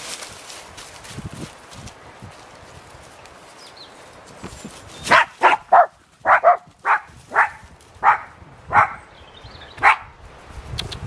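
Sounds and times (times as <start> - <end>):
dog barking sharply: 5.1 - 9.0, 9.8 - 10.1.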